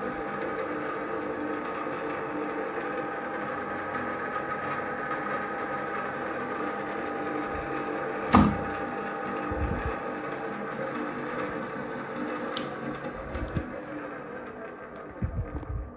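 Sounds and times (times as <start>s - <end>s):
drill press humming and whining: 0.0s - 15.9s.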